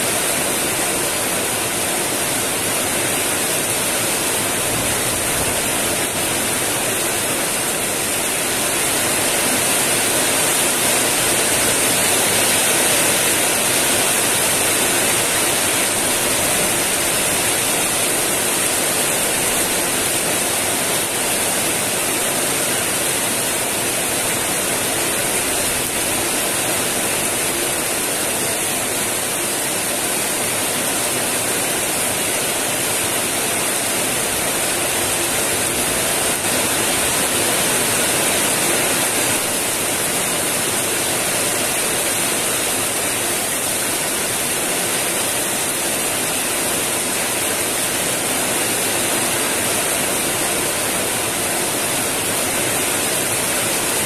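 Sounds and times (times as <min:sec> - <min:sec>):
heavy rain pouring: 0:00.0 - 0:54.0.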